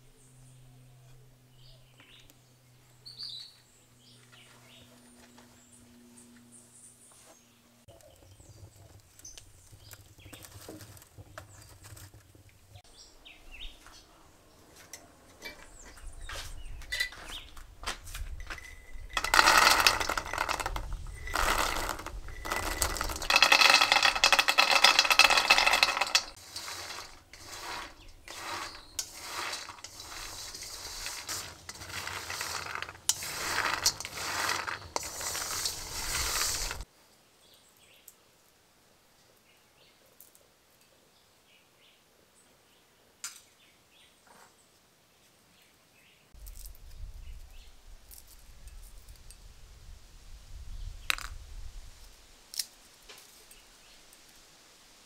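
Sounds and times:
small fire crackling: 0:18.5 - 0:36.9
beans pouring into metal wok: 0:18.6 - 0:36.8
beans stirred with wooden spatula: 0:18.6 - 0:36.9.

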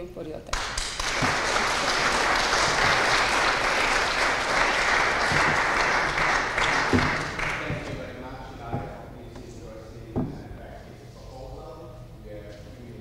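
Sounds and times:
audience applauding: 0:00.5 - 0:08.1.

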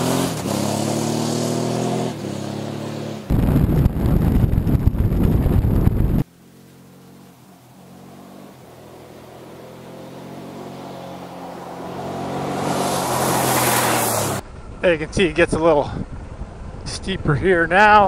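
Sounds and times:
wind buffeting on camera: 0:03.3 - 0:06.2
motorcycle engine approaching: 0:13.8 - 0:18.0.

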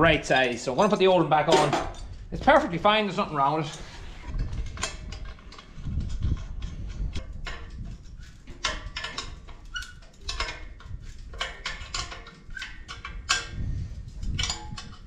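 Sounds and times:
metallic clinks and knocks: 0:00.2 - 0:02.8, 0:04.4 - 0:15.0.

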